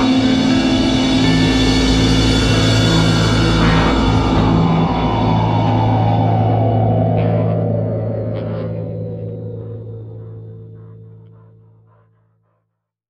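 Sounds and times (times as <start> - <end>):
rock instrumental music: 0.0 - 8.8.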